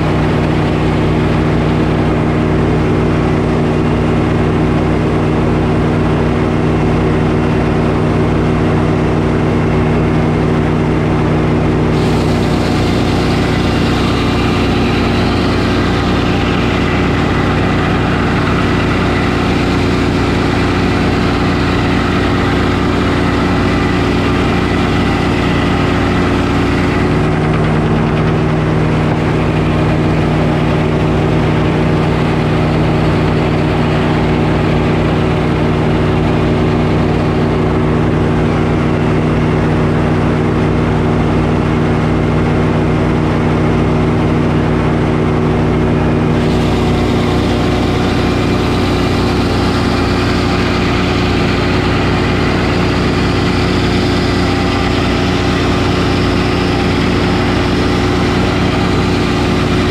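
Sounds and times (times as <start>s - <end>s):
sawmill engine droning: 0.0s - 59.9s
saw blade cutting wood: 12.0s - 37.1s, 46.3s - 59.9s.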